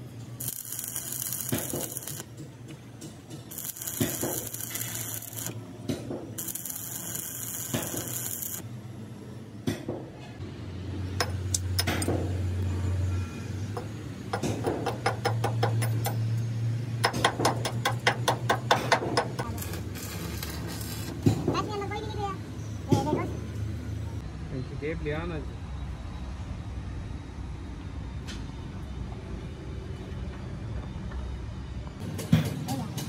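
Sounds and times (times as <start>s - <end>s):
metal scraping and rubbing: 3.5s - 5.6s, 19.4s - 21.3s
sharp taps on metal: 13.8s - 16.2s, 17.0s - 19.5s.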